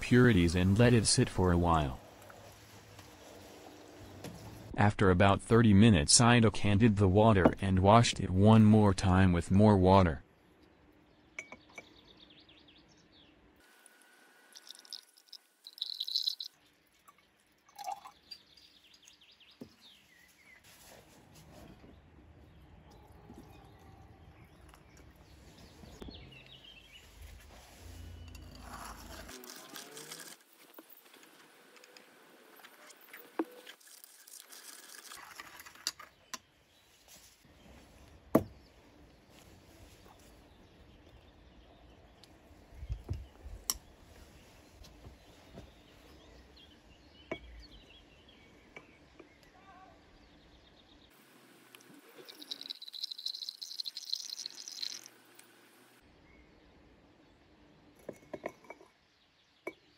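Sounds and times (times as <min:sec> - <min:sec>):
faint birds chirping: 0:09.6 - 0:13.6, 0:14.5 - 0:29.3, 0:36.0 - 0:59.9
water trickling between beakers: 0:14.4 - 0:19.3, 0:51.6 - 0:56.0
glass rod clinking on beaker: 0:15.7 - 0:16.5.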